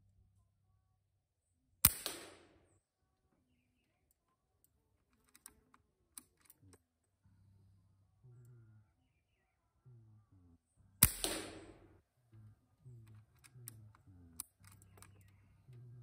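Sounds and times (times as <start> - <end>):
air rifle shot: 1.8 - 2.6, 11.0 - 11.9
metallic clicks of rifle bolt: 1.9 - 2.6, 4.6 - 6.8, 13.0 - 15.4.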